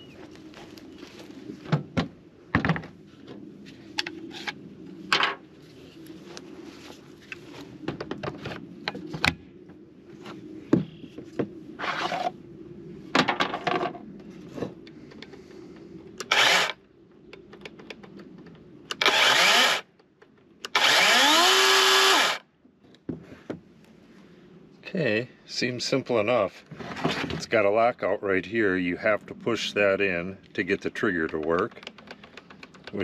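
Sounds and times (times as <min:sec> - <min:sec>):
electric chainsaw motor whine: 0:16.2 - 0:16.8, 0:18.9 - 0:19.8, 0:20.7 - 0:22.4.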